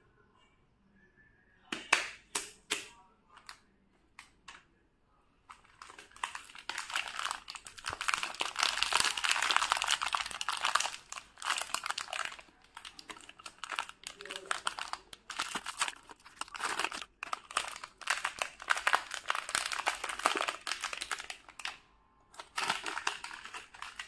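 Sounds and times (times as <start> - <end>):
plastic wrapper crinkling: 5.5 - 24.0.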